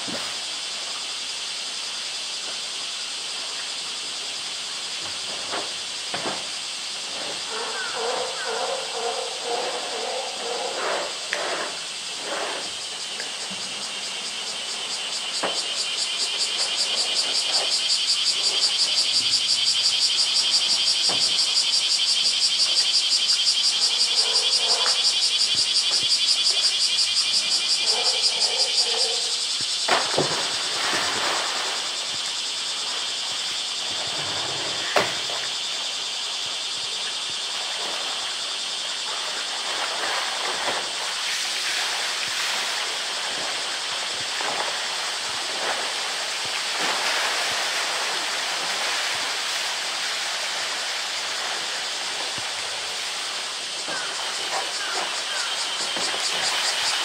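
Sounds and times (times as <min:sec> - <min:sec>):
bear splashing in water: 0:29.9 - 0:32.1, 0:37.4 - 0:57.0.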